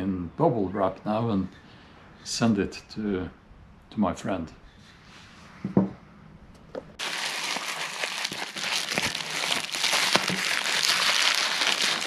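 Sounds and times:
bubble wrap crinkling: 7.0 - 12.0.

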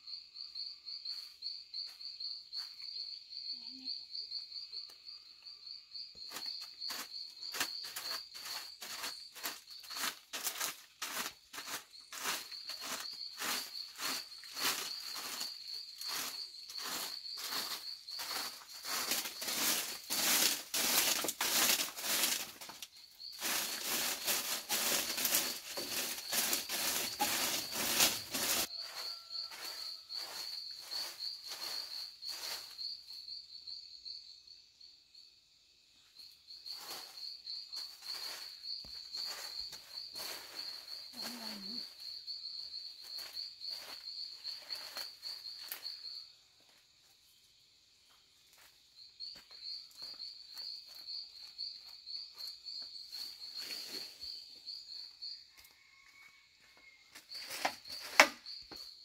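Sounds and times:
broom sweeping dry leaves: 6.3 - 32.9, 36.7 - 42.0, 43.0 - 45.9, 53.1 - 54.4
insect trilling: 11.6 - 33.2, 36.7 - 46.2.

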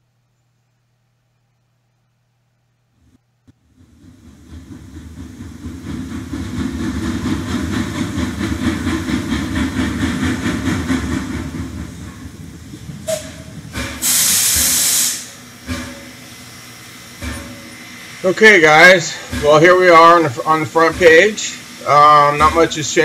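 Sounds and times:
train running rhythmically: 3.6 - 23.0
loud hiss burst: 8.0 - 23.0.

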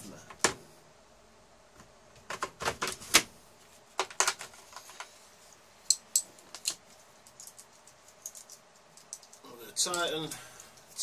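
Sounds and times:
metal parts clicking and rattling: 5.9 - 11.0.

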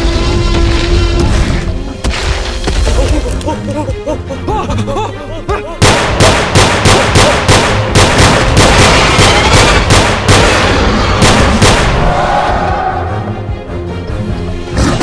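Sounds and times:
background music: 0.0 - 15.0
rapid gunfire: 5.8 - 12.0.

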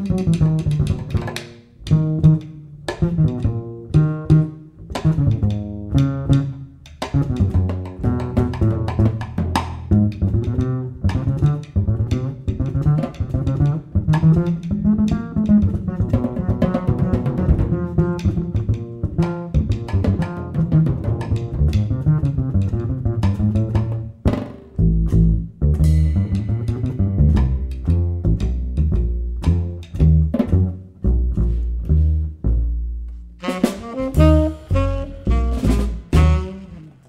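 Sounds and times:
plucked double bass: 0.0 - 37.0
drum kit on cymbals and drums: 33.4 - 36.8.

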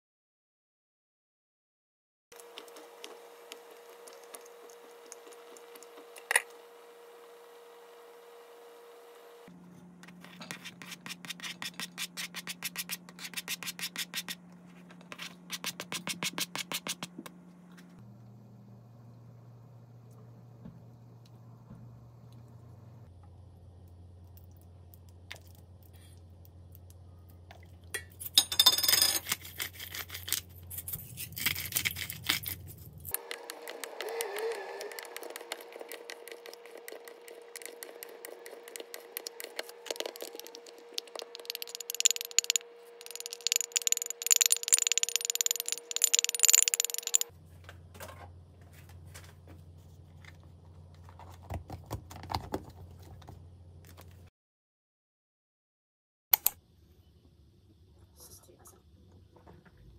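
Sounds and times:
spoon scraping metal bowl: 35.1 - 47.3.

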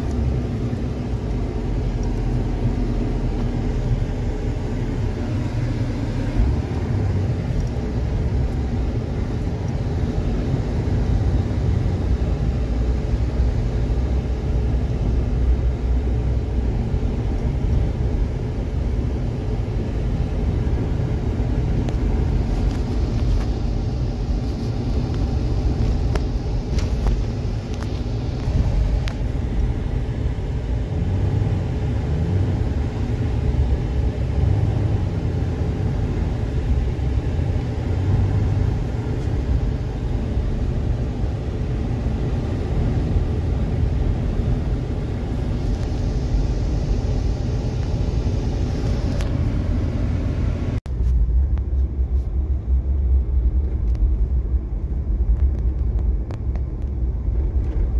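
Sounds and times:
car engine and tyre rumble: 0.0 - 57.9.

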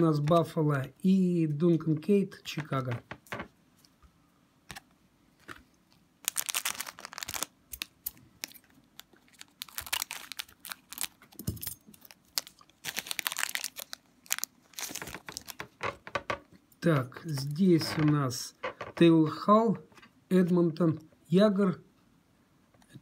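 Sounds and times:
foil wrapper crinkling and tearing: 6.2 - 15.8.

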